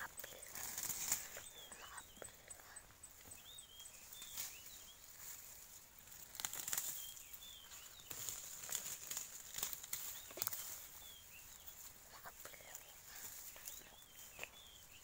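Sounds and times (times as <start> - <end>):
ferns rustling and snapping: 0.0 - 2.2, 4.1 - 11.9
bird chirps: 0.0 - 5.2, 6.6 - 8.8, 10.0 - 15.0.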